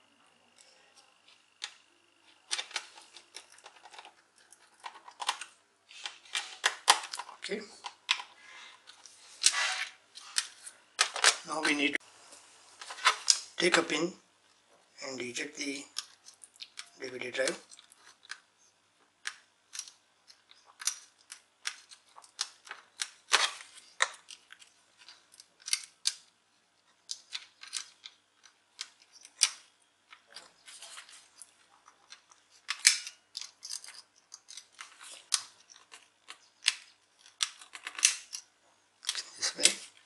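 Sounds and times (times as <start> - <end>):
plastic and metal clicks and scrapes: 1.0 - 11.4, 19.2 - 40.0.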